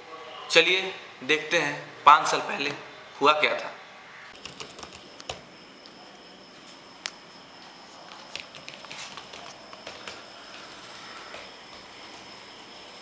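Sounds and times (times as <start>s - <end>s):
high-pitched whine and hiss: 0.0s - 13.0s
laptop keyboard typing: 4.4s - 5.4s, 8.1s - 10.7s.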